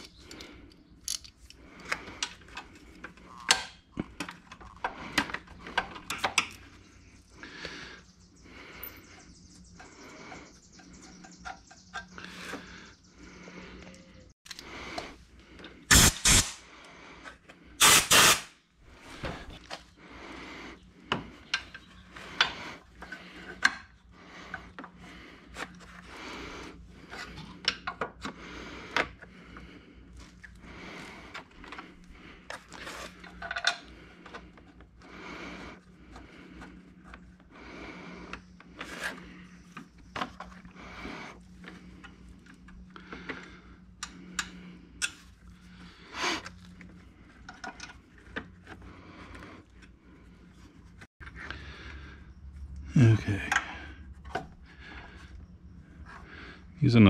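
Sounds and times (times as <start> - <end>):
ratchet and sockets clicking: 17.8 - 18.5.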